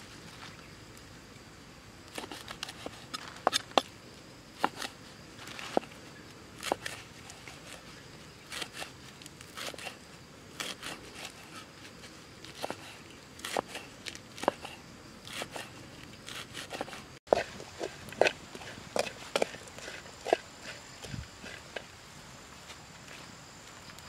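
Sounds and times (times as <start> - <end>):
knife chopping on wooden block: 14.4 - 15.7.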